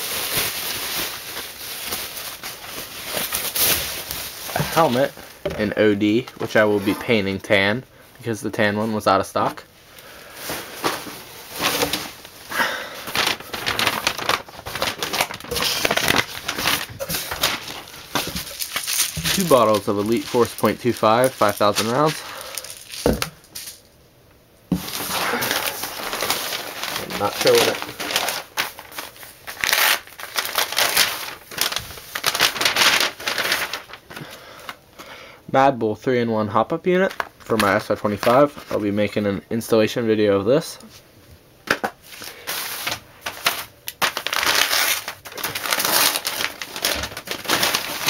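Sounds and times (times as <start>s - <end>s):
paper rustling and crinkling: 0.0s - 7.6s, 10.3s - 23.8s, 24.7s - 34.4s, 37.0s - 38.9s, 41.8s - 48.0s.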